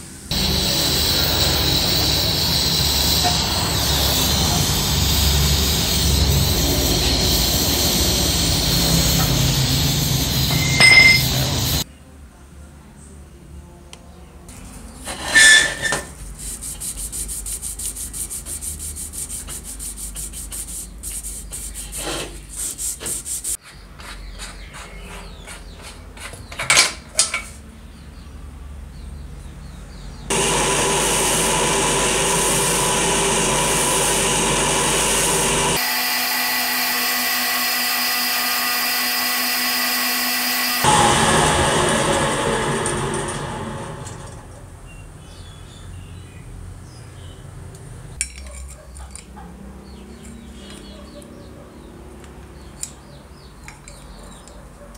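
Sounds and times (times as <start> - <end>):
bench lathe whining: 0.3 - 11.8, 30.3 - 44.7
metal scraping: 0.3 - 11.8, 14.9 - 16.2, 30.3 - 44.8
sharp metal clinks: 10.5 - 11.6.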